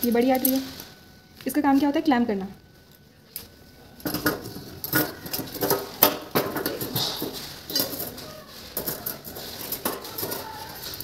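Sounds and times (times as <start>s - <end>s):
metal forceps clinking: 3.4s - 11.0s.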